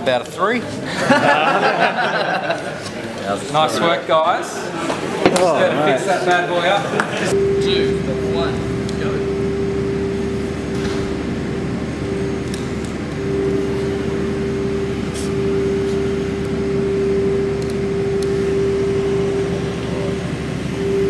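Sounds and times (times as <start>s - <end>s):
small electric motors whining: 7.6s - 21.0s.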